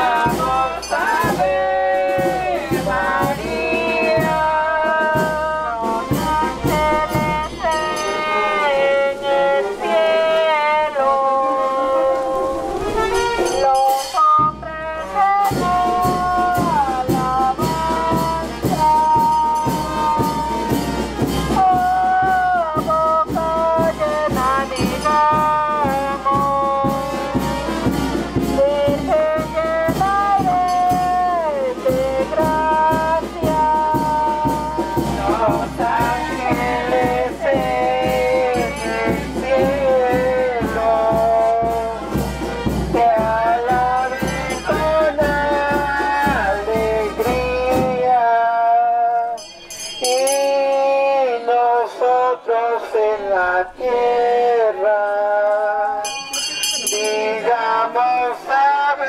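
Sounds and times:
steady drum beat: 0.0 - 10.3, 12.3 - 48.4
brass band music: 0.0 - 48.1.

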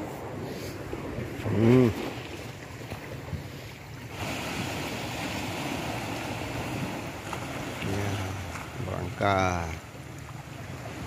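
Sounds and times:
wind on microphone: 0.0 - 8.4
small waves washing on beach: 0.0 - 11.0.

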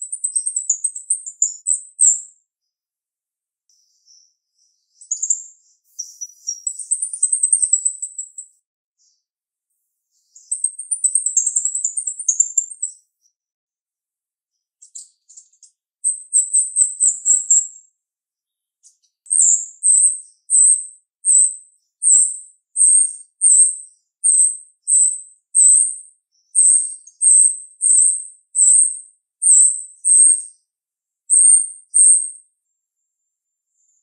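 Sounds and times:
bird calling high-pitched: 5.0 - 8.4, 19.3 - 26.0, 26.6 - 30.5, 31.3 - 32.4.

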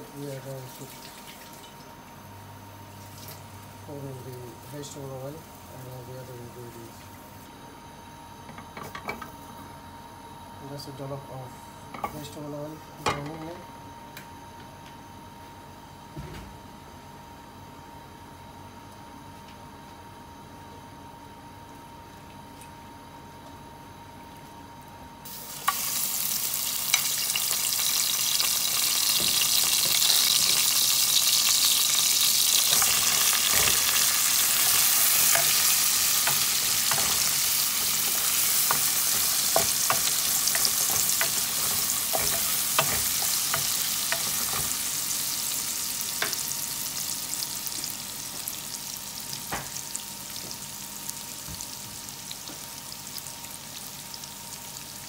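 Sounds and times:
food sizzling in hot oil: 25.2 - 55.0.

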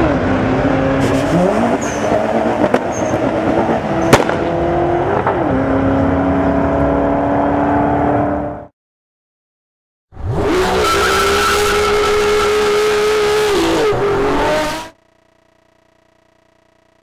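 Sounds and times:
sports car engine revving: 0.0 - 8.7, 10.2 - 15.0
tyre squealing: 2.9 - 3.3.

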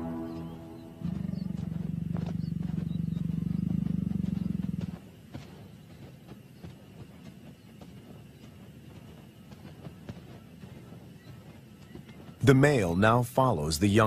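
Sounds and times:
lion growling: 1.0 - 5.0
faint ticks: 1.0 - 12.4.

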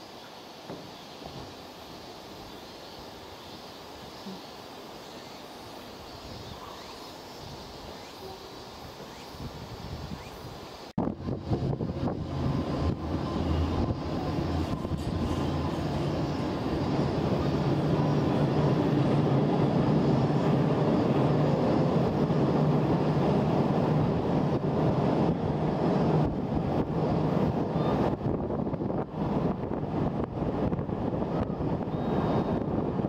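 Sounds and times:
train crossing steel bridge: 10.2 - 33.0.

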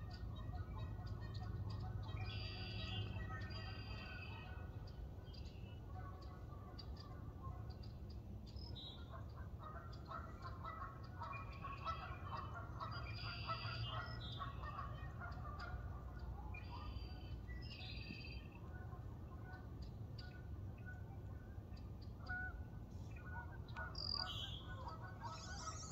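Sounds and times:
faint bird calls: 0.0 - 25.9
steady low rumble: 13.9 - 25.9.

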